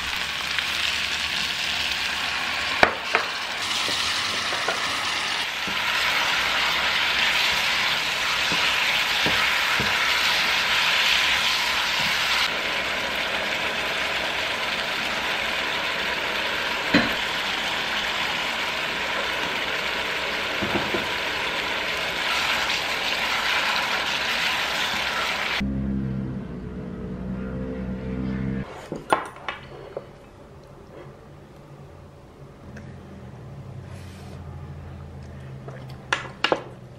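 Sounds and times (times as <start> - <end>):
food sizzling in a pot: 0.0 - 25.6.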